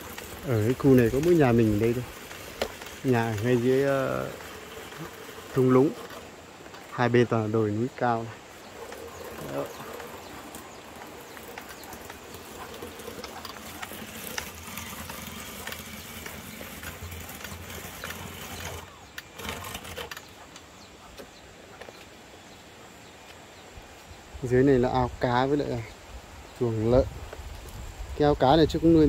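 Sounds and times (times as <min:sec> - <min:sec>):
slicer rattling ticks: 0:00.0 - 0:06.8.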